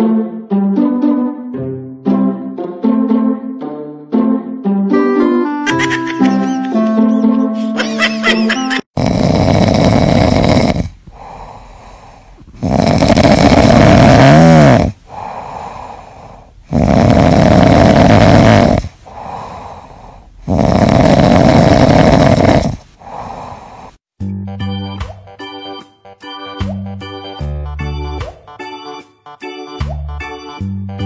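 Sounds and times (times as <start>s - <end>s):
kitten snoring: 9.0s - 24.0s
quiet breaths: 9.5s - 13.8s, 14.8s - 17.6s, 18.6s - 24.0s.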